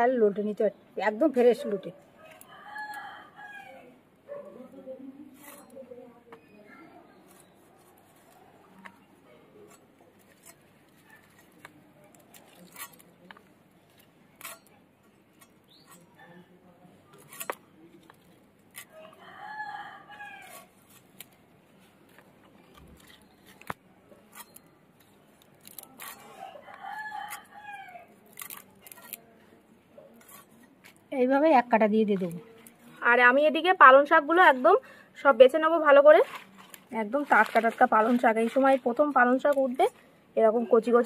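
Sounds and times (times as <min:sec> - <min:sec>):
rooster crowing: 0:02.2 - 0:03.9, 0:19.0 - 0:20.6, 0:26.3 - 0:28.1.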